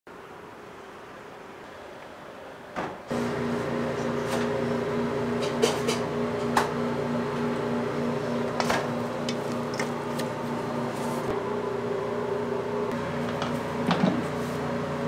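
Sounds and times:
kitchen machinery hum: 2.8s - 15.0s.

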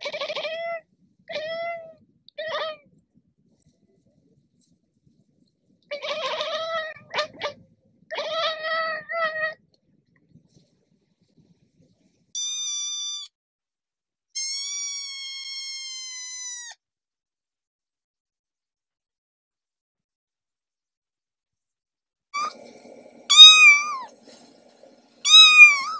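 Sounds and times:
adult cat meowing: 0.0s - 2.8s, 5.9s - 9.6s, 23.3s - 24.1s, 25.3s - 25.9s
kitten meowing: 12.4s - 13.3s, 23.3s - 24.1s, 25.3s - 25.9s.

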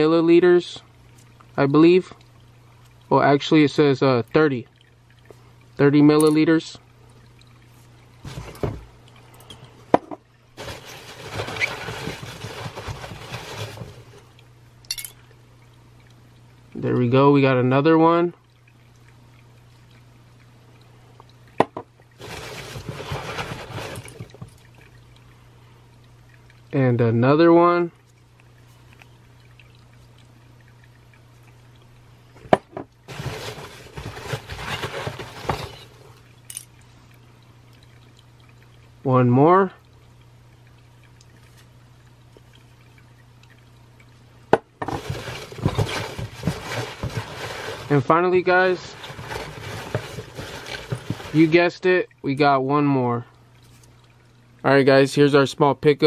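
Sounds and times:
low steady hum: 0.0s - 56.0s
rustling of foam packing peanuts: 10.6s - 14.0s, 33.1s - 35.8s, 44.9s - 48.1s.

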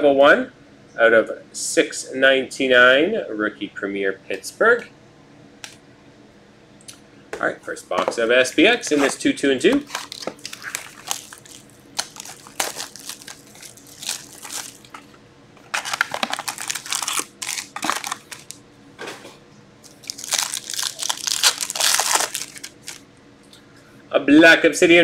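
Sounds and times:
card wrappers crinkling and tearing: 8.9s - 15.1s, 15.7s - 18.6s, 19.8s - 23.0s
cardboard box rustling: 15.8s - 18.5s.

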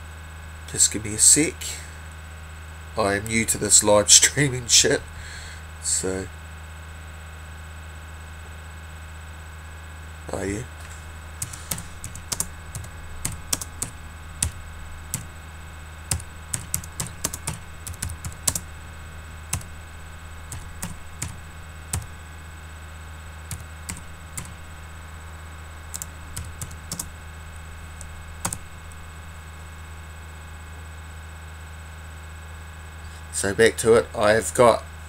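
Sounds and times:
steady low hum: 0.0s - 35.0s
typing on a keyboard: 11.4s - 14.6s, 16.1s - 18.7s, 20.5s - 22.1s, 23.5s - 24.6s, 25.9s - 27.1s.

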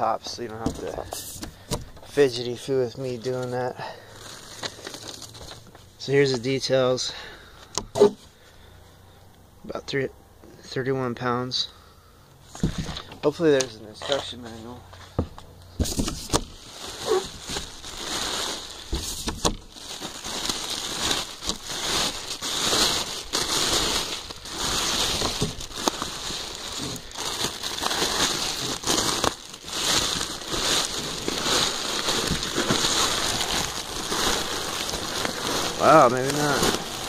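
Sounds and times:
plastic wrap crinkling: 0.0s - 6.5s, 15.8s - 37.0s.

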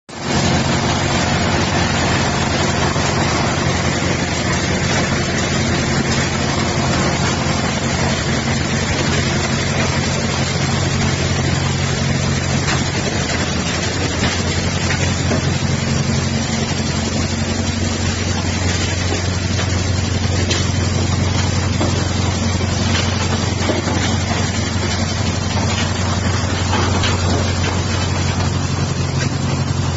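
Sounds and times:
diesel engine drone: 0.1s - 29.9s
crusher grinding rock: 0.4s - 29.9s.

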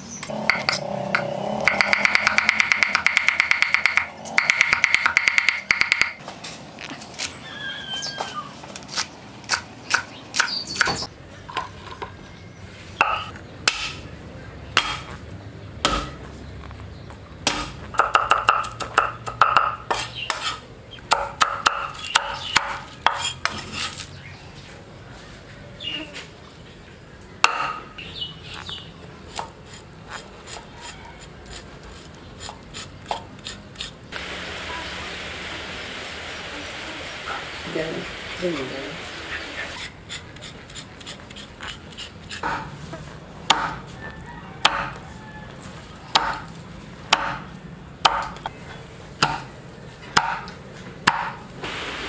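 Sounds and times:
cleaver chopping on wooden block: 1.6s - 6.2s, 14.8s - 15.1s, 21.1s - 23.2s, 27.4s - 27.8s, 43.5s - 43.8s, 44.6s - 45.0s, 46.1s - 46.5s, 47.1s - 48.4s, 50.2s - 50.5s, 51.1s - 51.4s.

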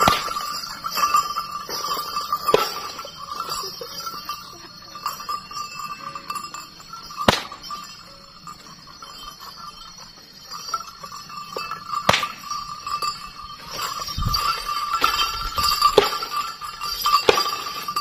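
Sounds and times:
whip cracking: 0.0s - 0.4s, 7.3s - 7.6s, 12.1s - 12.4s.

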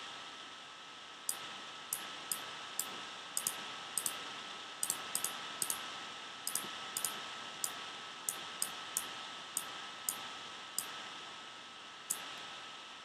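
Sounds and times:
background hiss: 0.0s - 13.0s
computer mouse clicks: 1.3s - 4.2s, 4.8s - 5.8s, 6.5s - 10.2s, 12.1s - 12.3s.

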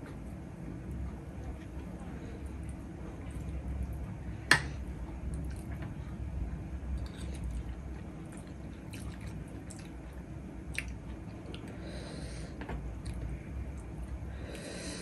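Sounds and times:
wet chewing: 7.0s - 11.7s.

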